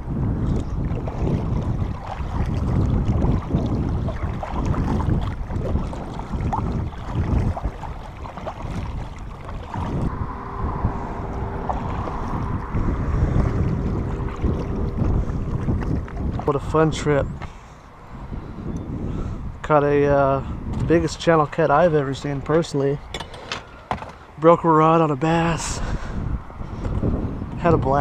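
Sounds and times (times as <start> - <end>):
wind buffeting microphone: 0.0 - 28.0
paddle splashing water: 0.3 - 18.5.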